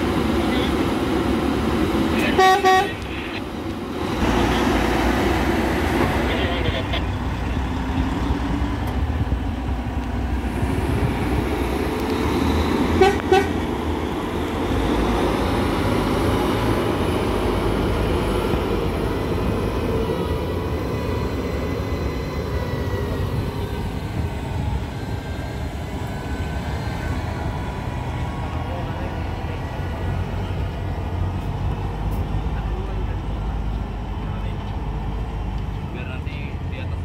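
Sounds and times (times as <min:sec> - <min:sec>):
diesel engine running: 0:00.0 - 0:37.0
horn toots: 0:02.2 - 0:03.1, 0:13.0 - 0:13.6.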